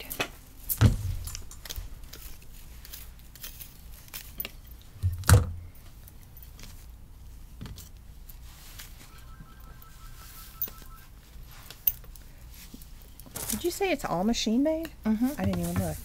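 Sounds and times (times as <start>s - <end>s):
wig rustling: 1.0s - 5.0s.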